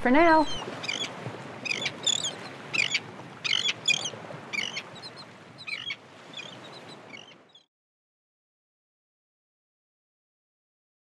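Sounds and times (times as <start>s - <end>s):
birds chirping: 0.0s - 7.7s.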